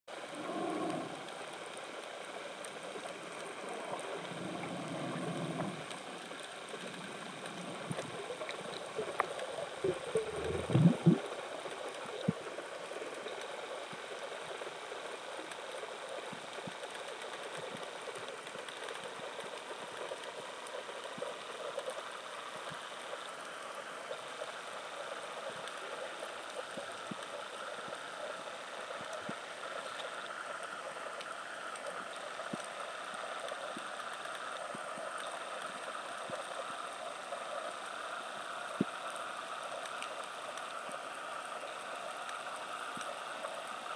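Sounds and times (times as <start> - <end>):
faint underwater clicks: 0.1 - 43.9
underwater watery hiss: 0.2 - 1.7, 3.6 - 11.3.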